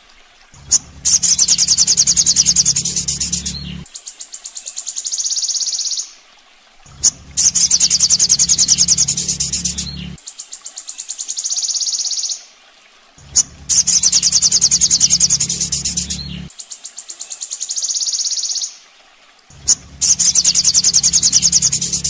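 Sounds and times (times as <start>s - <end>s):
bird trilling: 0.6s - 3.8s, 7.0s - 10.2s, 13.3s - 16.5s, 19.6s - 22.0s.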